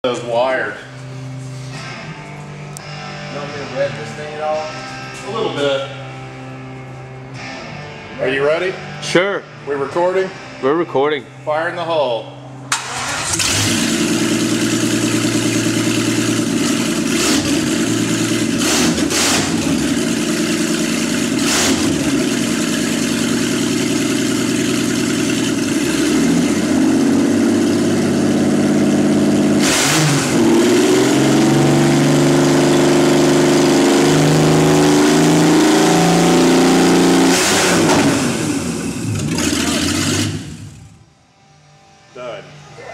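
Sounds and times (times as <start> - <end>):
car engine idling and revving: 12.7 - 41.1.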